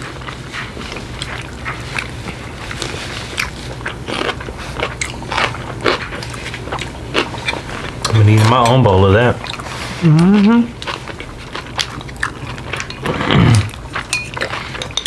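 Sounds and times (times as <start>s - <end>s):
steady low hum: 0.0s - 15.0s
wet chewing and lip-smacking: 0.0s - 15.0s.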